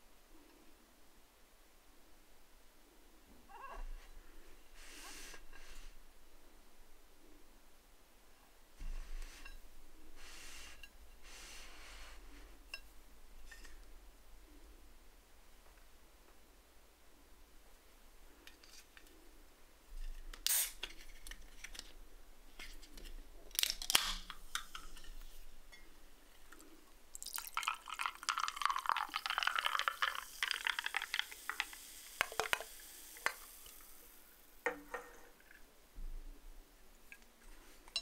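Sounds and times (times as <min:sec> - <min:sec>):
drink fizzing and crackling: 0:26.3 - 0:34.5
soft drink poured into glass: 0:26.6 - 0:33.9.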